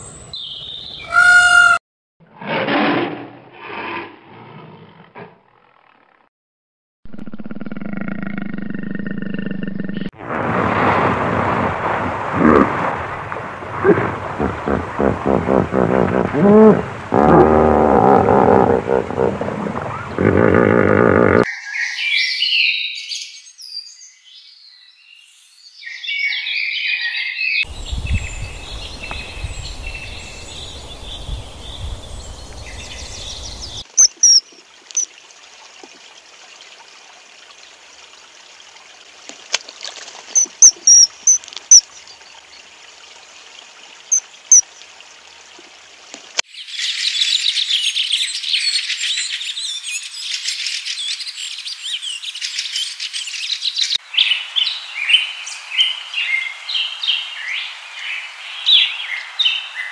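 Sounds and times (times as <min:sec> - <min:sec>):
birds chirping: 0:13.8 - 0:22.7, 0:27.6 - 0:35.1, 0:40.4 - 0:42.1.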